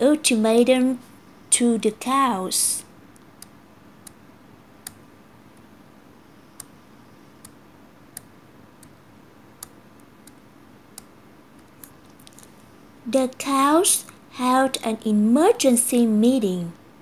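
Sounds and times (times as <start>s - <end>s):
faint small clicks: 6.6s - 6.8s, 7.4s - 7.6s, 11.0s - 12.7s.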